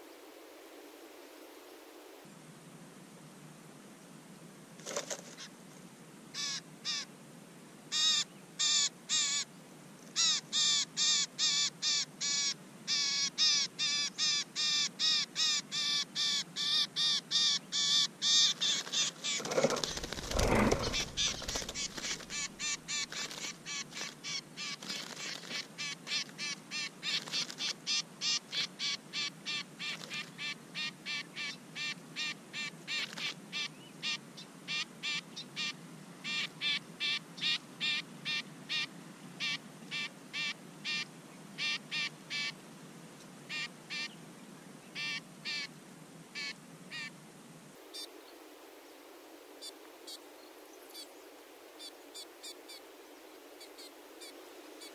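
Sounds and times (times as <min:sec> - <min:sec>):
bird harsh distress calls: 0:10.2 - 0:25.9
rustling in dry grass: 0:18.6 - 0:25.8.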